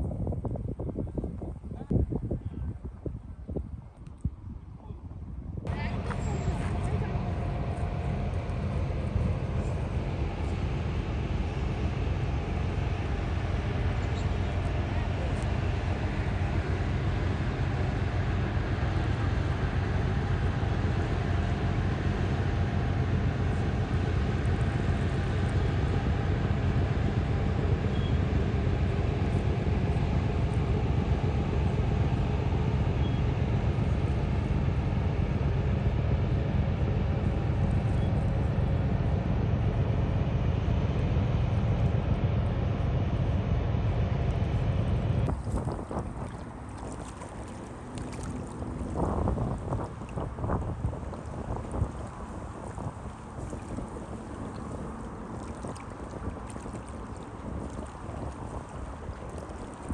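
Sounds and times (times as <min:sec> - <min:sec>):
boat engines rumbling: 0:00.0 - 0:59.9.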